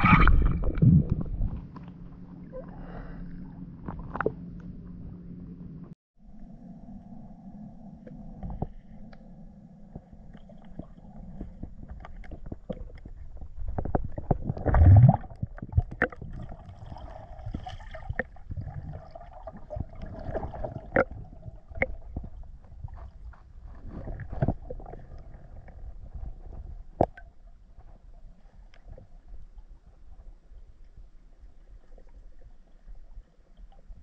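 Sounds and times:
muffled underwater water movement: 0.0s - 34.0s
loud gurgling surge: 14.7s - 15.3s.

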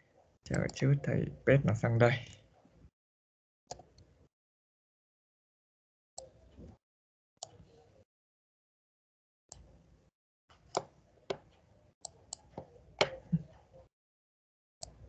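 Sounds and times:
computer mouse clicks: 3.7s - 4.1s, 10.5s - 13.7s.

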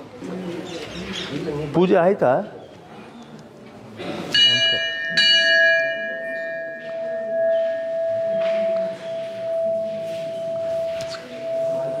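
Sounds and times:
brass bell ringing: 4.4s - 12.0s.

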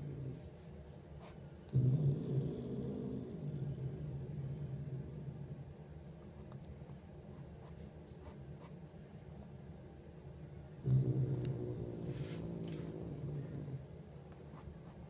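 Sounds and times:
cat rumbling low: 0.0s - 0.5s, 1.7s - 6.6s, 10.7s - 14.1s.

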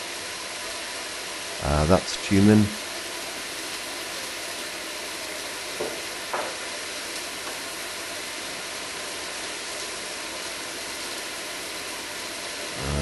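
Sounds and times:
food sizzling in a pan: 0.0s - 13.0s.

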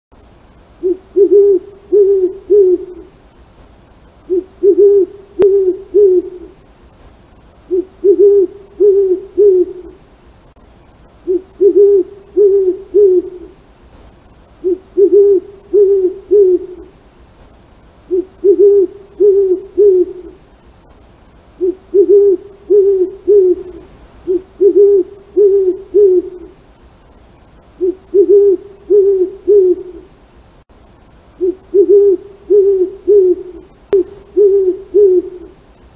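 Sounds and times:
owl hooting: 0.8s - 3.2s, 4.3s - 6.6s, 7.7s - 10.0s, 11.2s - 13.6s, 14.6s - 16.9s, 18.1s - 20.4s, 21.6s - 26.6s, 27.8s - 30.1s, 31.4s - 35.6s.

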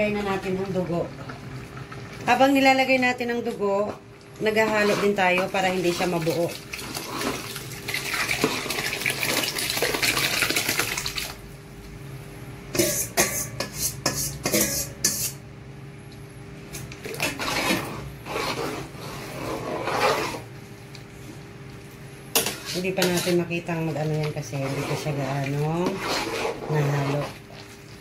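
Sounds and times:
ladle clinking and scraping pot: 12.7s - 15.4s, 17.1s - 20.4s, 22.4s - 27.4s.

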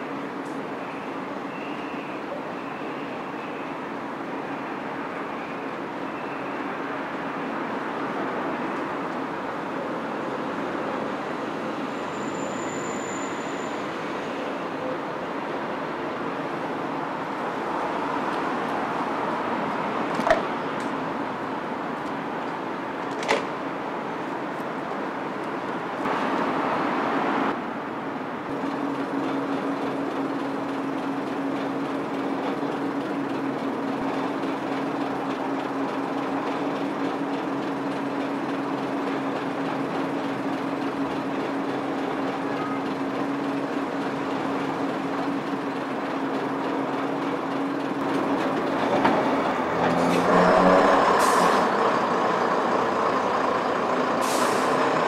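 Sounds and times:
railcar diesel engine idling: 28.5s - 49.8s, 50.9s - 55.0s.

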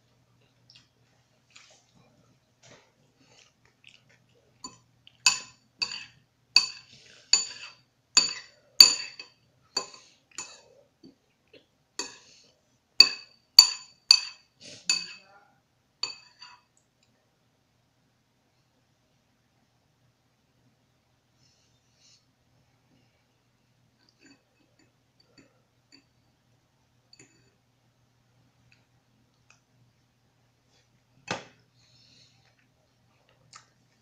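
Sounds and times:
spoon clinking against a bowl: 4.6s - 10.6s, 13.0s - 15.2s, 16.0s - 16.7s.

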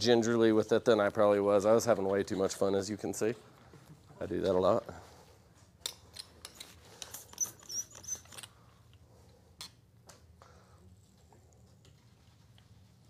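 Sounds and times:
high wavering squeak: 7.2s - 8.4s.

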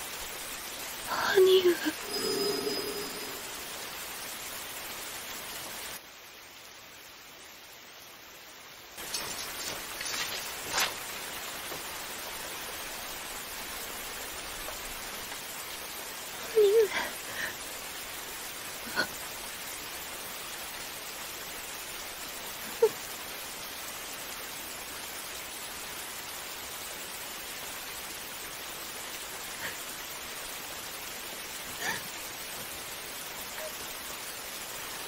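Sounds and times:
steady rain falling: 0.0s - 35.0s
person sobbing: 16.5s - 17.5s.

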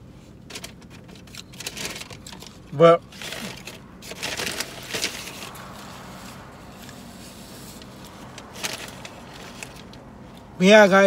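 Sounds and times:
paper bag rustling: 0.5s - 6.4s, 7.5s - 10.0s.

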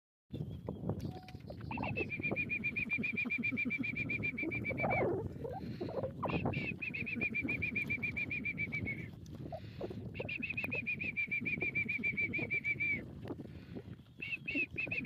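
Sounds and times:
bird trilling: 1.1s - 5.2s.

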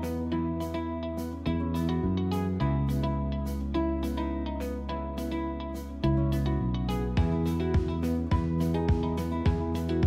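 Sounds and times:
held bass notes: 0.0s - 10.0s
plucked guitar: 0.0s - 10.0s
steady beat: 7.2s - 10.0s.

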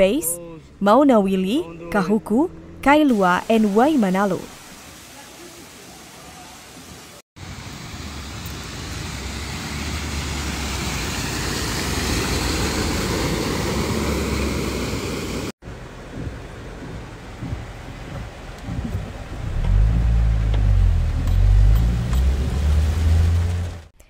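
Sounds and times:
car driving heard from inside: 1.6s - 2.8s, 7.5s - 23.9s
rushing spraying water: 3.1s - 23.9s.

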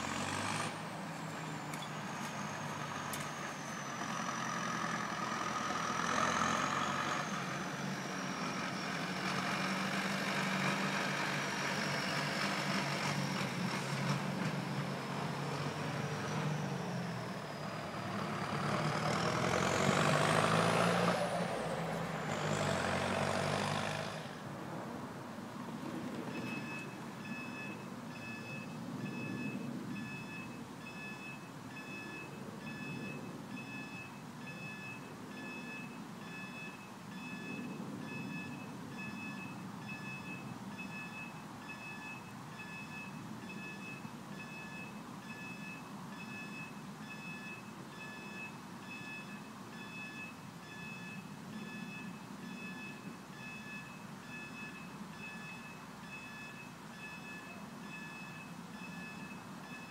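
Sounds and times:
level crossing alarm beeping: 26.4s - 59.9s.

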